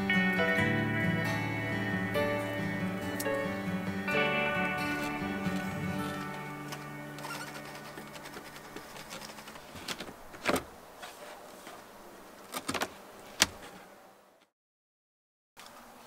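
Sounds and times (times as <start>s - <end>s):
faint background music: 0.0s - 9.8s.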